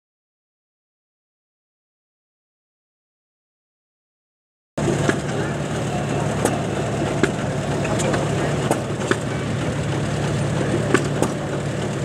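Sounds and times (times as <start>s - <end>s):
tractor engine running: 4.8s - 12.0s.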